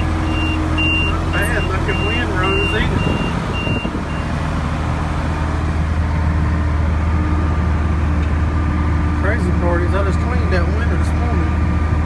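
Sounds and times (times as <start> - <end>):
tractor engine drone: 0.0 - 12.0.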